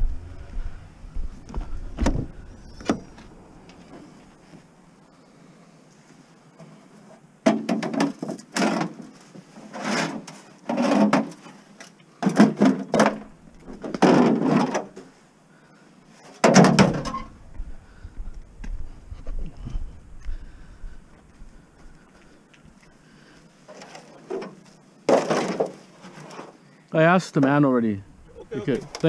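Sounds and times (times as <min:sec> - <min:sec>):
metal gutters scraping and clattering: 0:07.7 - 0:11.6, 0:12.2 - 0:15.1, 0:16.3 - 0:17.4, 0:23.7 - 0:26.5.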